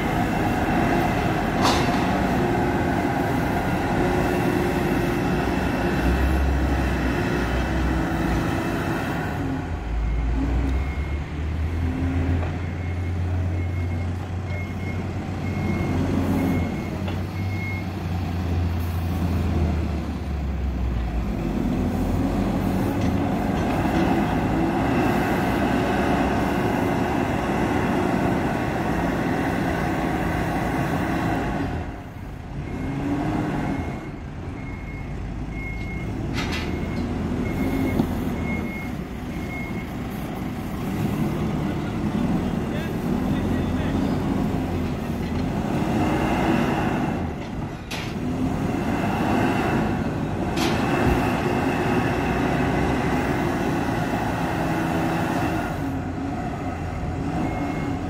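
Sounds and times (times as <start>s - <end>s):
backhoe diesel engine working: 0.0s - 58.0s
reversing alarm beeping: 9.9s - 18.0s, 32.2s - 41.2s, 57.0s - 58.0s.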